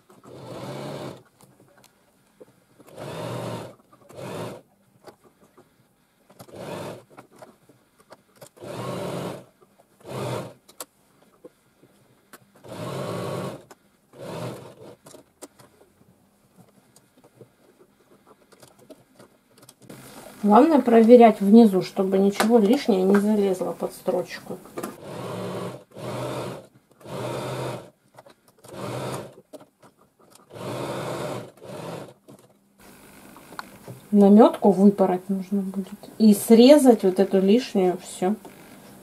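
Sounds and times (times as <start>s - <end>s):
electric sewing machine stitching: 0.2s - 1.3s, 2.9s - 4.6s, 6.4s - 7.2s, 8.4s - 10.6s, 12.6s - 15.2s, 22.9s - 27.9s, 28.6s - 29.5s, 30.4s - 32.2s.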